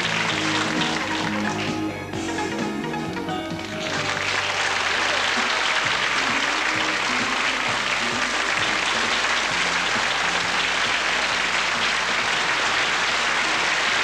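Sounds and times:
audience applauding: 0.0s - 14.0s
band music: 0.0s - 14.0s.

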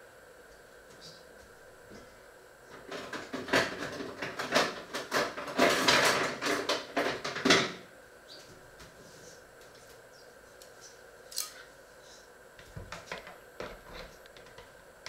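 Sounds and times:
clattering and rustling objects: 1.9s - 7.8s, 12.6s - 14.7s.

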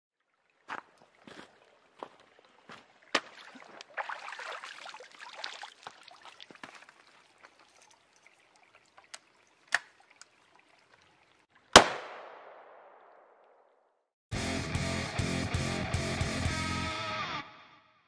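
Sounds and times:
water pouring and splashing: 0.2s - 11.7s.

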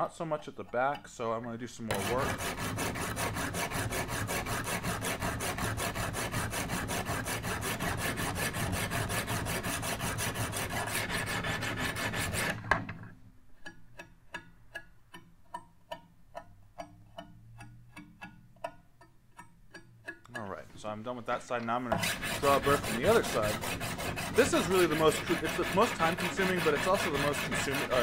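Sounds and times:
stone scraping steel blade: 1.9s - 5.9s, 21.9s - 28.0s
light ticks: 13.6s - 20.6s.

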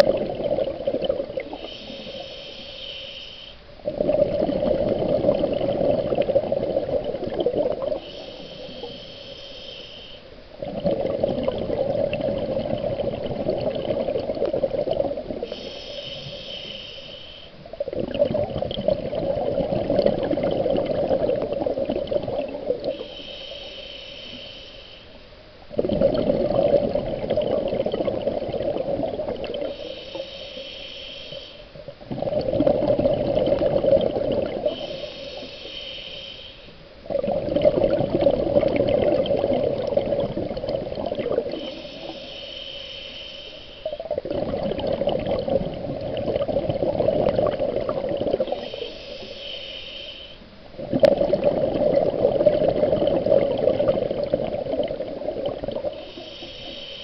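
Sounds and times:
bubbling exhaled air: 0.0s - 3.0s, 3.8s - 24.6s, 25.7s - 36.4s, 37.0s - 57.0s
regulator inhale hiss: 1.4s - 3.9s, 7.6s - 10.6s, 15.0s - 17.9s, 22.6s - 25.6s, 29.3s - 32.0s, 34.3s - 37.1s, 39.8s - 44.3s, 47.3s - 50.8s, 54.2s - 57.0s.

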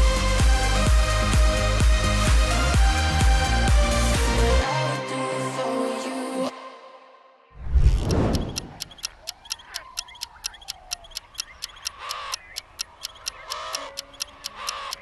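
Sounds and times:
clock ticking: 7.7s - 15.0s
crows cawing: 11.7s - 15.0s.

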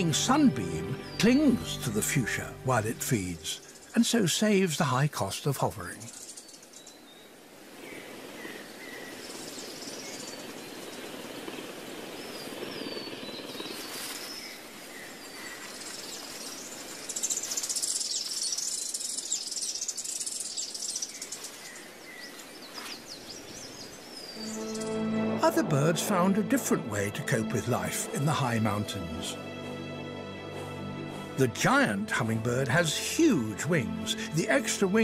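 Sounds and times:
small birds chirping: 0.0s - 25.2s
steady background hiss: 2.8s - 29.9s.

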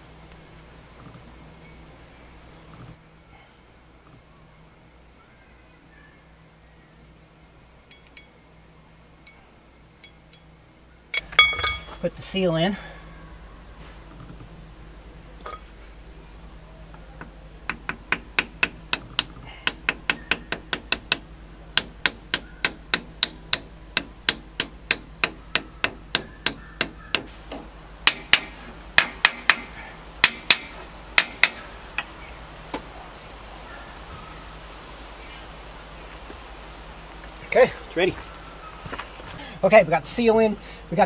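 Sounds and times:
small hammer tapping metal: 17.7s - 32.1s.

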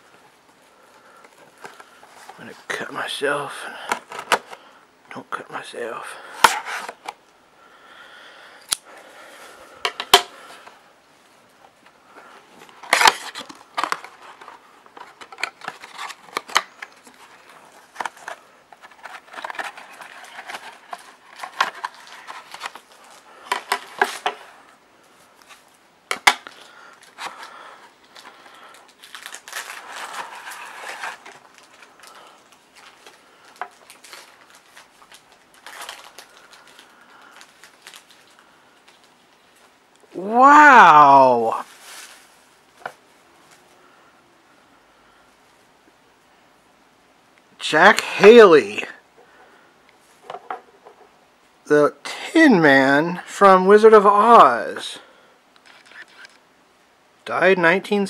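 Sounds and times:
plastic wrap crinkling: 12.2s - 24.5s, 25.3s - 39.7s, 41.5s - 43.6s.

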